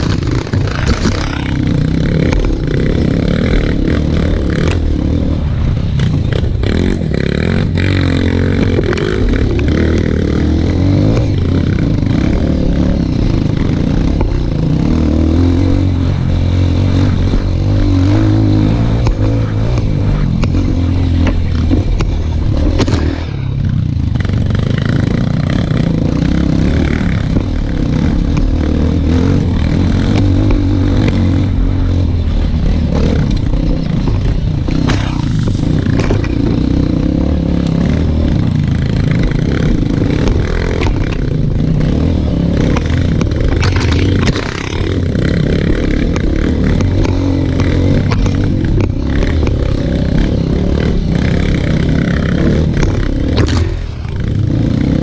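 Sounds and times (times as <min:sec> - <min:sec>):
dirt bike engine under load: 0:24.1 - 0:55.0.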